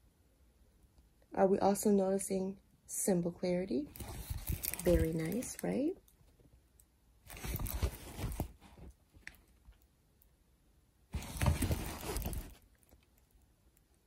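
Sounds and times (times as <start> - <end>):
rustling handling noise: 3.8 - 6.4, 7.2 - 9.8, 11.1 - 13.1.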